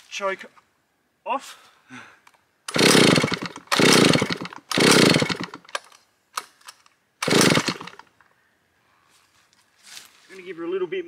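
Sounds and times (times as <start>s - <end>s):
chainsaw engine short bursts: 2.7s - 5.7s, 7.2s - 8.1s.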